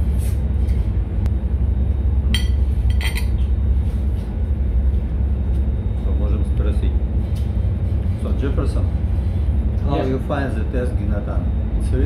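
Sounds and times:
low machinery rumble: 0:00.0 - 0:12.0
cutlery clinking on ceramic plate: 0:02.4 - 0:03.4.

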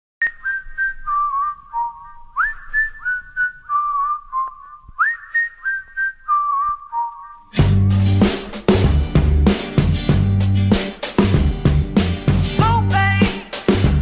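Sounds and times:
whistled melody: 0:00.2 - 0:08.2.

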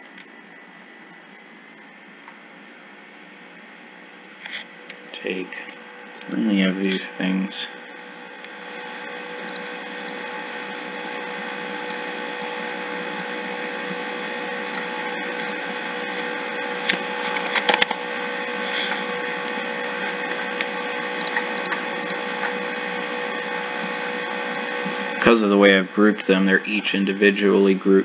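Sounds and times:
electrical hum and hiss: 0:00.0 - 0:28.0
sharp clicks: 0:09.4 - 0:10.2.

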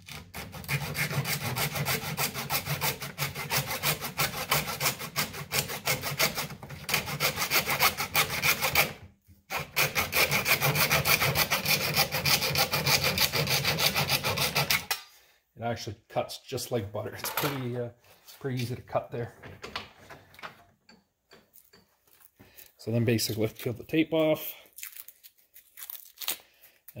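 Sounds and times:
handsaw cutting plastic: 0:00.0 - 0:15.0.

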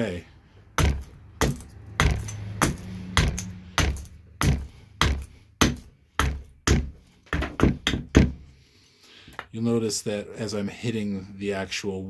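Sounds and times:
axe chopping wood: 0:00.7 - 0:08.4.

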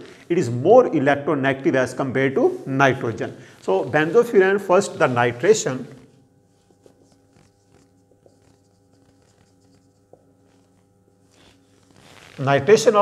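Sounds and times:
faint room hum: 0:00.0 - 0:13.0
marker writing on whiteboard: 0:06.5 - 0:12.0.

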